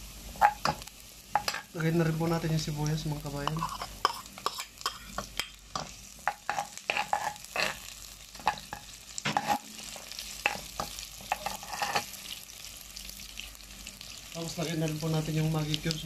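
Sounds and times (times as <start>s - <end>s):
garlic and onion sizzling in oil: 0.0s - 16.0s
metal spatula scraping a pot: 3.4s - 12.3s.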